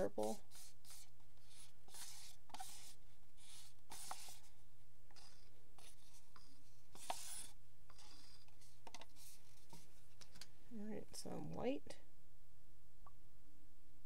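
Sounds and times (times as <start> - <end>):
stick scraping plastic cup: 0.0 - 4.5, 5.1 - 10.5.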